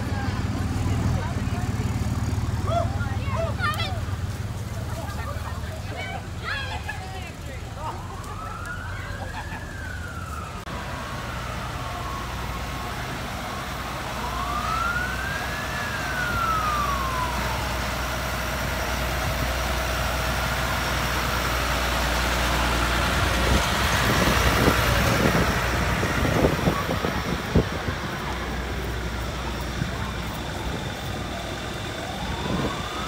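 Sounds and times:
tractor diesel engine running: 0.0 - 33.0
siren wailing: 7.9 - 18.2, 29.8 - 33.0.

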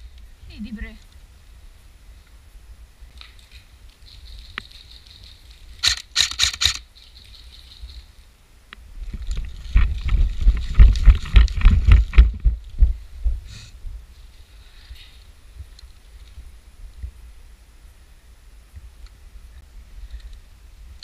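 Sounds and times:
airsoft gun shots: 5.8 - 6.8
thumps and rustling on microphone: 9.0 - 14.0.

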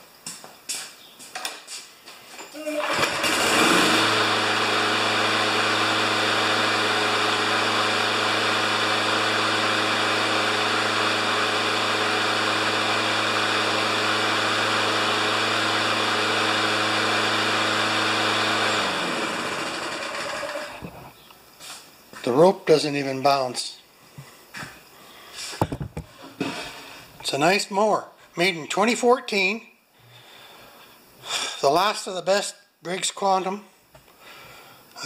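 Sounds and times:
lawn mower engine running: 2.8 - 21.1.

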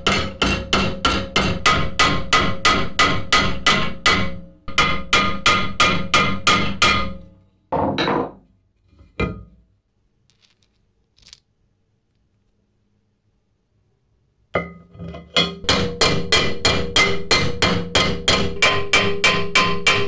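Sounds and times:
hammer striking metal rivet: 0.0 - 7.2, 15.4 - 20.0.

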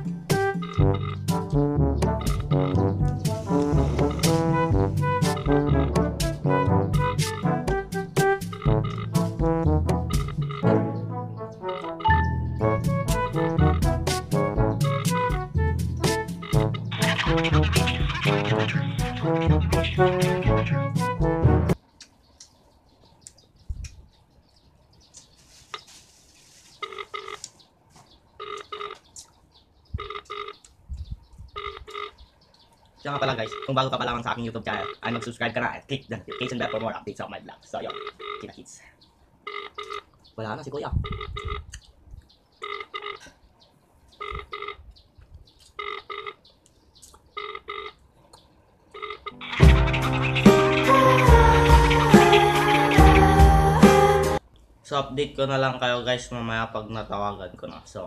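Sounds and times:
phone ringing tone double beeps: 0.6 - 1.3, 8.4 - 9.2, 11.7 - 12.4, 26.8 - 27.4, 28.4 - 29.0, 30.0 - 30.6, 31.6 - 32.2, 33.4 - 33.8, 34.7 - 35.2, 37.8 - 38.5, 39.5 - 40.1, 41.0 - 41.7, 42.6 - 43.2, 44.2 - 44.8, 45.8 - 46.4, 47.4 - 48.0, 49.0 - 49.4.

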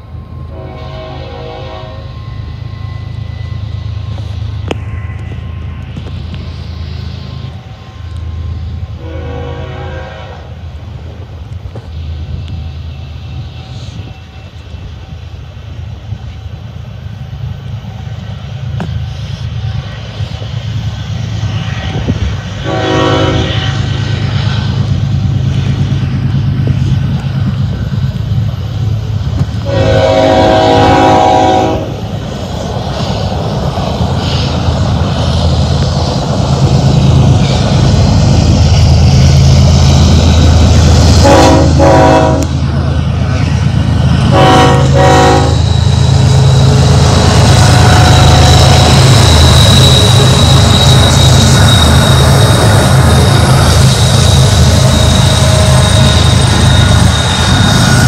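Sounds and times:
locomotive engine rumble: 0.0 - 58.0
locomotive air horn: 0.5 - 2.2, 8.9 - 10.6, 22.6 - 24.0, 29.6 - 32.0, 41.2 - 42.6, 44.3 - 45.7, 47.5 - 48.5.

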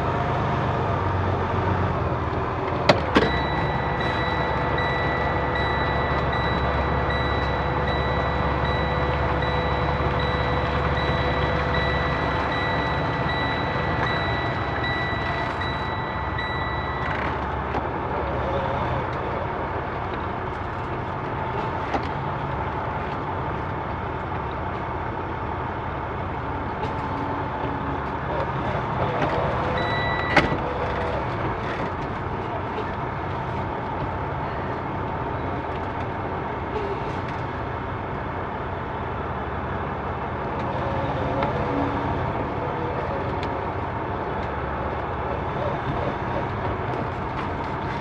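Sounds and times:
truck diesel engine running: 0.0 - 48.0
short high beep: 3.2 - 17.2.

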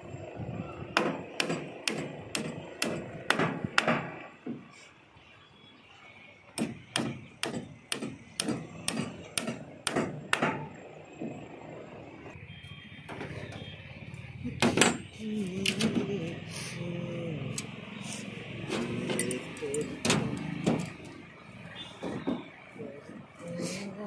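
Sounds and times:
hammer knocking on formwork: 1.0 - 4.7, 6.6 - 11.4, 22.0 - 22.6
steel plate knocking: 6.6 - 10.8.

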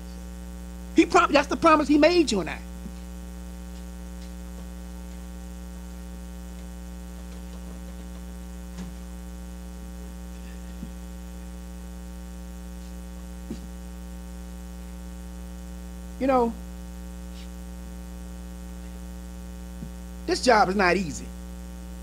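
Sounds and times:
electrical mains hum: 0.0 - 22.0.

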